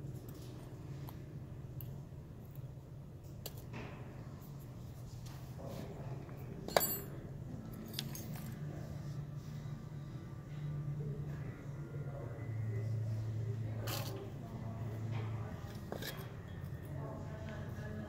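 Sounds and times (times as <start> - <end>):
metal clink with ring: 6.7 - 7.2
metal pick scraping metal: 15.6 - 16.4.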